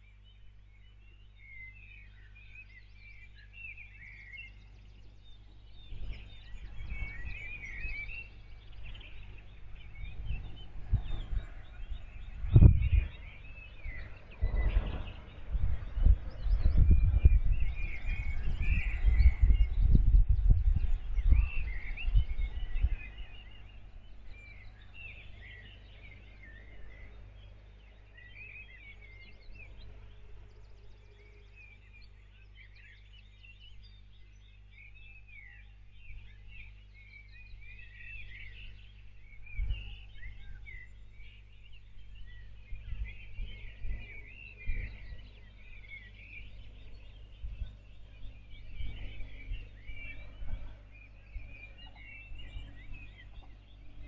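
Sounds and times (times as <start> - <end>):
songbirds chirping and trilling: 0.0 - 54.0
low gusting rumble: 5.8 - 28.1, 41.8 - 54.0.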